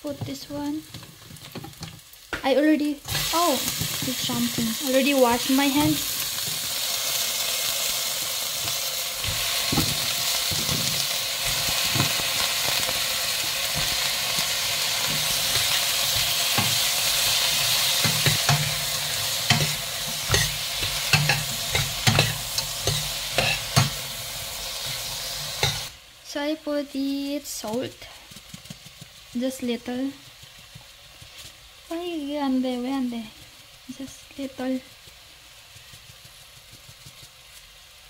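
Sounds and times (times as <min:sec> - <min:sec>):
shrimp sizzling in a pot: 0:00.0 - 0:38.0
metal ladle scraping a pot: 0:15.0 - 0:24.0.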